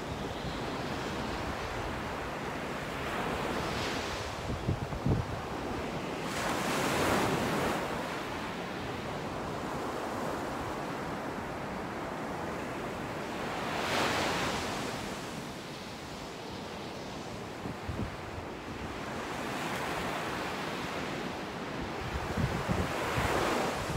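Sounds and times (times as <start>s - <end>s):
wind on microphone: 0.0s - 7.8s, 17.6s - 19.2s, 21.8s - 23.9s.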